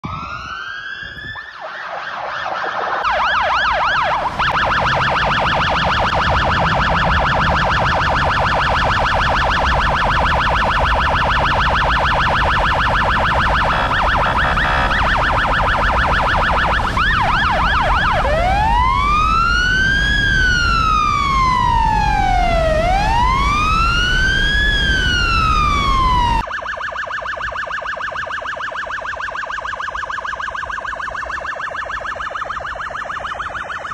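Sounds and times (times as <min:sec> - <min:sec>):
electronic siren warbling and wailing: 0:00.0 - 0:33.9.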